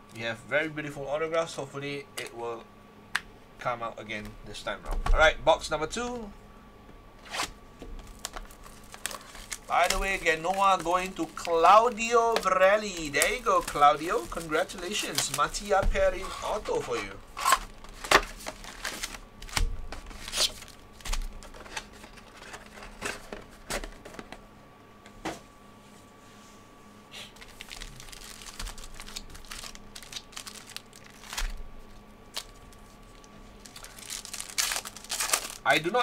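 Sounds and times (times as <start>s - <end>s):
foil wrapper crinkling: 8.0s - 23.3s, 27.4s - 36.0s.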